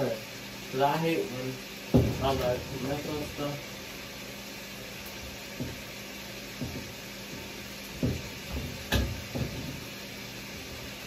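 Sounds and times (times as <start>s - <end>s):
meat sizzling in oil: 0.0s - 11.0s
soft knocks: 5.6s - 5.9s, 6.6s - 9.8s.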